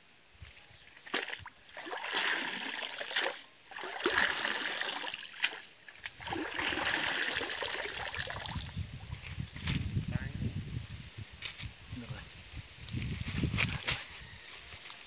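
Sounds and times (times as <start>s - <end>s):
net splashing in water: 1.0s - 8.7s
water streaming off net: 1.1s - 8.7s.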